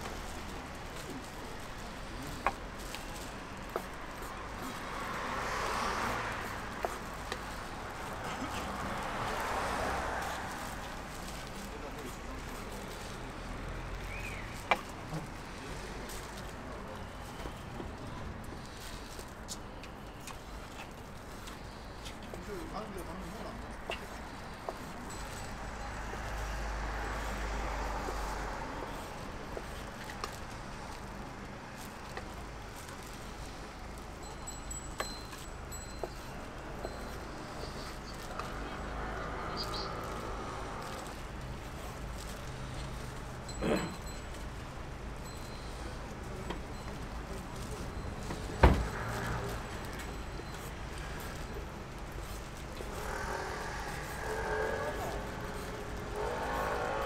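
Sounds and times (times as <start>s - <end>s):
low street rumble: 0.0s - 57.0s
steady background noise: 0.0s - 57.0s
light clicks and clinks: 29.0s - 39.0s, 40.0s - 53.0s.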